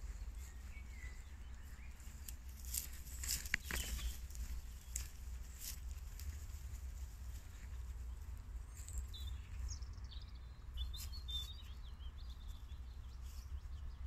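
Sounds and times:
steady low rumble: 0:00.0 - 0:10.7
small birds chirping: 0:00.0 - 0:14.0.

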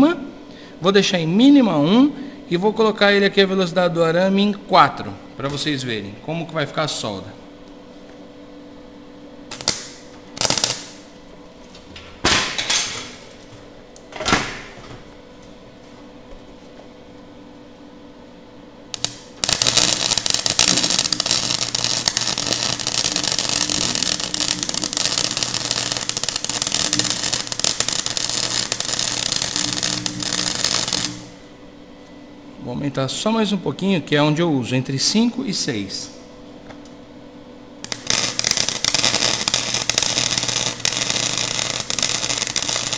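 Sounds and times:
welder hum: 0:09.1 - 0:11.8, 0:18.2 - 0:32.2, 0:37.8 - 0:42.9
welding arc crackling: 0:09.5 - 0:11.2, 0:18.9 - 0:31.5, 0:37.8 - 0:42.9.

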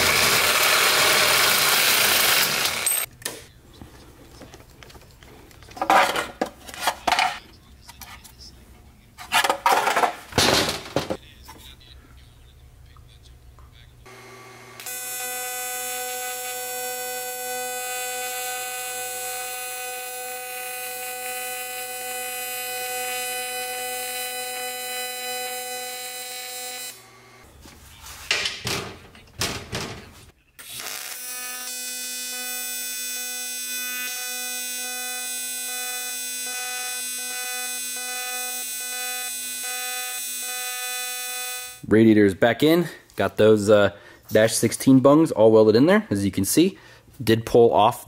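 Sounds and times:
welding arc buzzing: 0:00.0 - 0:03.1, 0:14.1 - 0:27.5, 0:30.6 - 0:41.8
knocks and handling sounds: 0:02.9 - 0:08.4, 0:09.2 - 0:11.7, 0:27.5 - 0:30.4.

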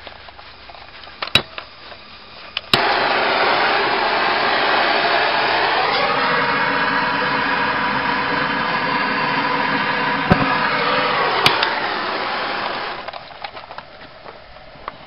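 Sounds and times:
torch hissing: 0:01.2 - 0:13.3
torch igniting with a pop: 0:02.7 - 0:13.2.

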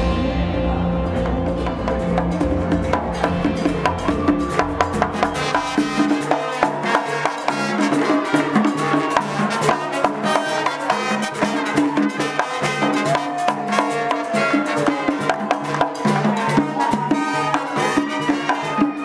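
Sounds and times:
tune over drums: 0:00.0 - 0:10.8
hand frame drums beating: 0:01.1 - 0:19.0.

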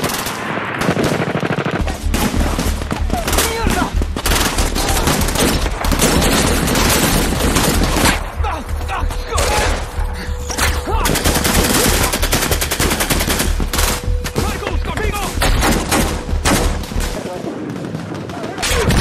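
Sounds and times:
automatic gunfire bursts: 0:00.0 - 0:08.2
rifle gunfire: 0:00.0 - 0:08.3.

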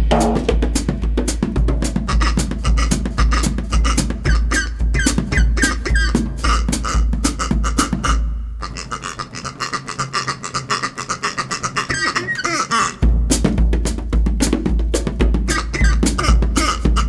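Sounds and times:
bass drum beats: 0:00.0 - 0:08.4, 0:13.0 - 0:17.0
rubber toy squeaks: 0:02.2 - 0:13.0, 0:15.5 - 0:17.0.

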